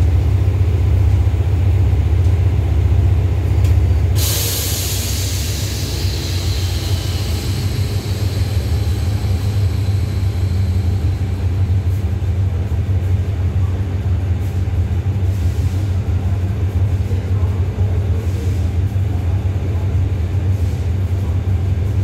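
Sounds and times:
diesel train engine idling: 0.0s - 22.0s
air brake hiss: 4.1s - 11.6s, 15.3s - 16.0s.

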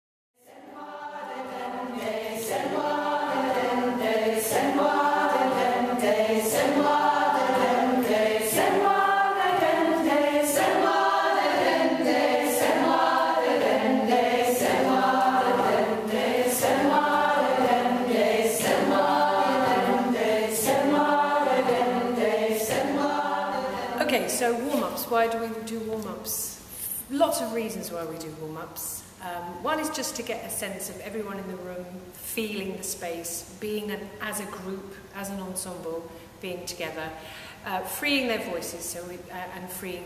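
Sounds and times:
choir singing a cappella: 0.4s - 24.9s.

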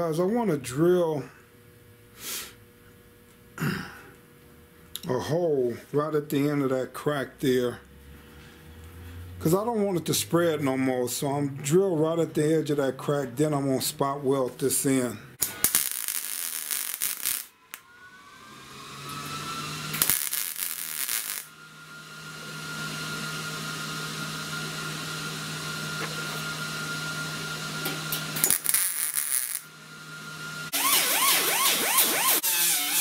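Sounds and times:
steady whine: 0.0s - 32.9s
welder crackling: 14.8s - 17.8s, 19.0s - 21.5s, 27.8s - 29.7s
angle grinder grinding: 15.4s - 21.9s, 27.8s - 29.7s, 30.7s - 33.0s.

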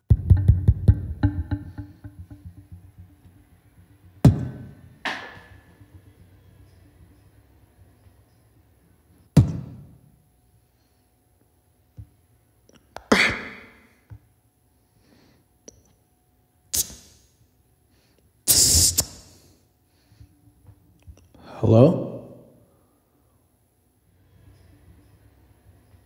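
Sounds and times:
beatboxer mouth sound effects: 0.0s - 4.7s, 16.7s - 17.2s, 18.5s - 19.5s.

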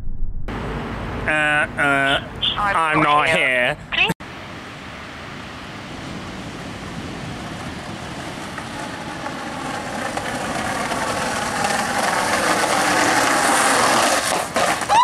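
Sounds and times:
skateboard wheels rolling on pavement: 5.0s - 15.0s.

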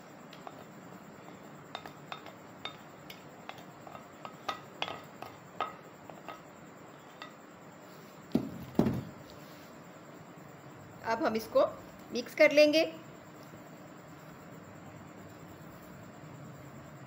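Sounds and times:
loud knock: 8.3s - 9.1s.

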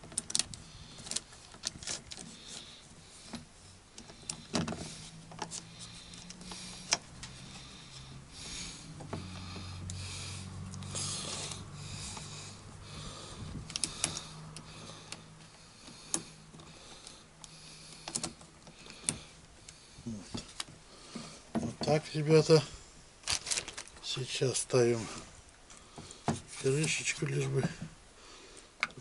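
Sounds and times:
faint rustling: 0.0s - 28.8s
low hum: 2.0s - 18.0s.

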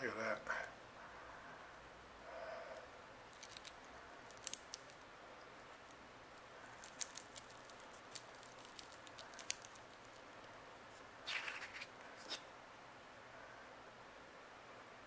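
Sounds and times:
steady low hiss: 0.0s - 15.0s
scratchy rustle: 10.9s - 12.5s.

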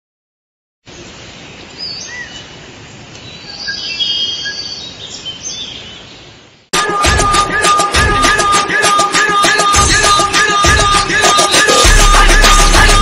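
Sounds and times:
steady forest hiss: 0.9s - 6.7s
bird chirps and whistles: 3.3s - 6.0s.

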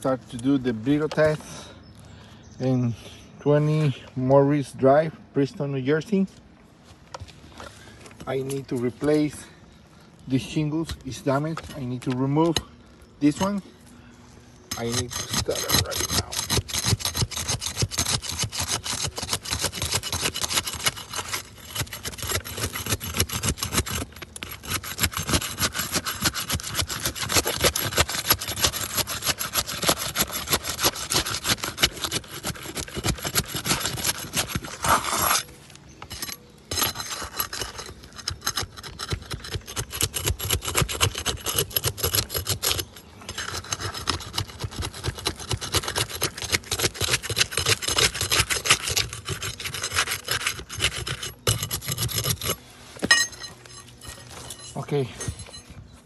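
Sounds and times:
pry bar scraping shingles: 10.4s - 13.6s, 14.6s - 55.8s.

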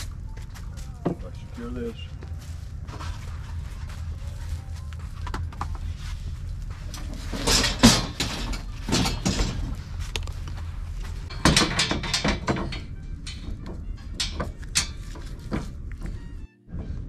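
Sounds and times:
low rumble: 0.0s - 17.0s
folding table clicks and rattles: 7.3s - 9.8s, 11.2s - 15.9s.

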